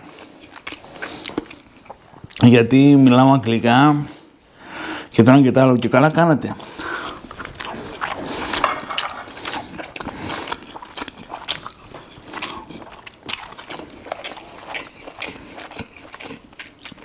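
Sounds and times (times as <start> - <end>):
man chewing food: 0.0 - 2.4, 6.6 - 17.0.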